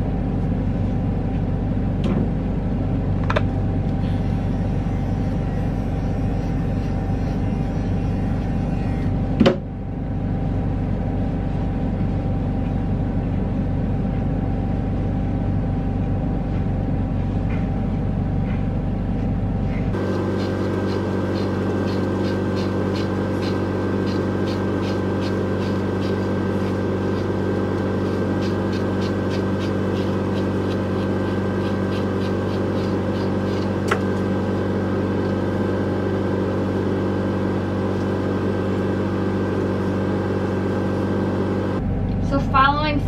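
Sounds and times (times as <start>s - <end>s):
mechanical hum: 0.0s - 43.0s
brush raking through dog fur: 20.0s - 35.4s.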